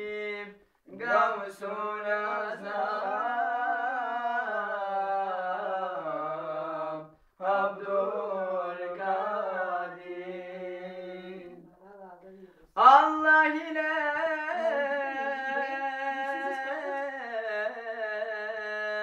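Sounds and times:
young men singing unaccompanied: 0.0 - 19.0.

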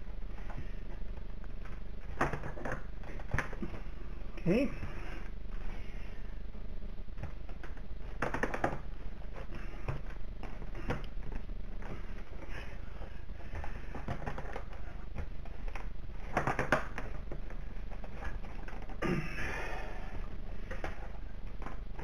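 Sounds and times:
plastic clicks and knocks: 7.2 - 12.0, 13.5 - 19.0.

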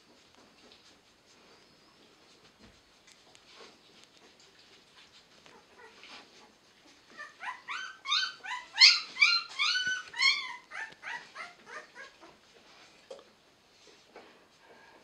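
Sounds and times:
puppies squealing: 7.1 - 12.3.

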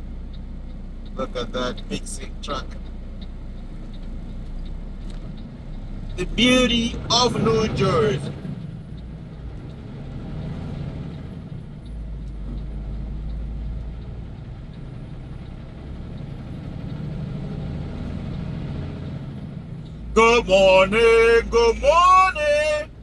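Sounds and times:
road noise: 0.0 - 23.0
truck engine rumbling: 0.0 - 23.0
man talking: 1.2 - 2.8, 6.2 - 8.4, 20.2 - 22.9.

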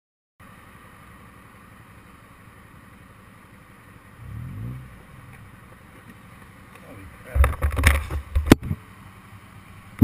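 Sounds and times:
motorcycle engine idling: 0.4 - 10.0
engine revving: 4.2 - 5.8.

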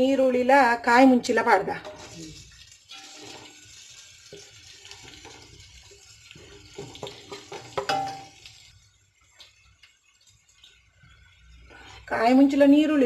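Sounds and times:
onions sizzling in hot oil: 0.0 - 13.0
spoon knocking against pan rim: 6.8 - 8.4.

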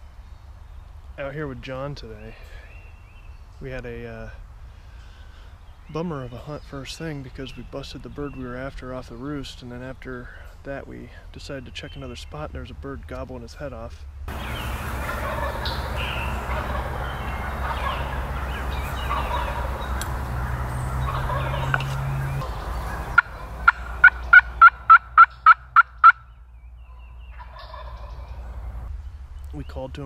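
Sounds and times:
background hiss: 0.0 - 26.8
turkey yelps: 14.3 - 26.3, 26.9 - 28.4
turkey gobbling: 14.3 - 28.6.

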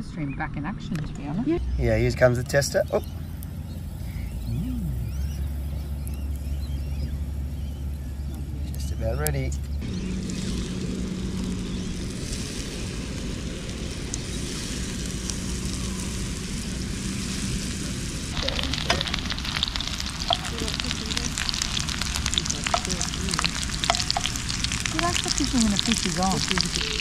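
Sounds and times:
steady low hum: 0.0 - 27.0
fish sizzling and crackling in pan: 9.8 - 27.0.

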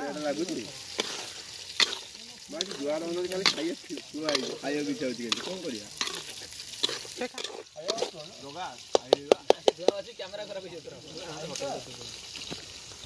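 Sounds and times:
curry sizzling in a wok: 0.0 - 13.0
metal spatula scraping a wok: 0.7 - 8.9.

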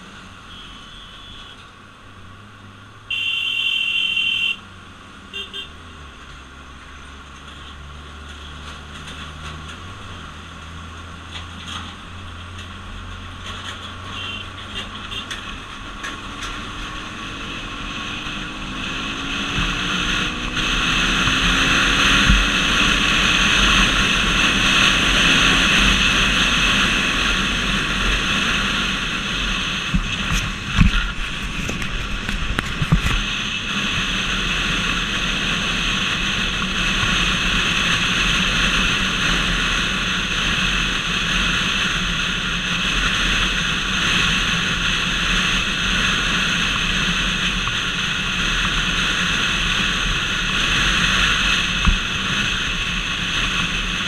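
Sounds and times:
motorcycle engine: 0.0 - 54.0
vehicle horn: 0.4 - 1.7, 3.1 - 4.7, 5.3 - 5.8, 14.1 - 15.4
wind noise: 14.8 - 54.0.

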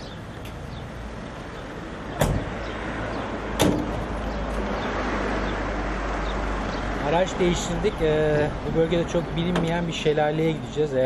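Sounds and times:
truck doors slamming: 2.1 - 2.7, 3.5 - 4.2.

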